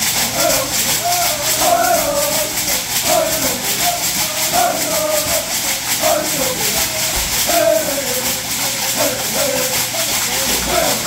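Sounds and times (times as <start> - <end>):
men chanting call and response: 0.0 - 11.0
shell shakers rattling: 0.0 - 11.0.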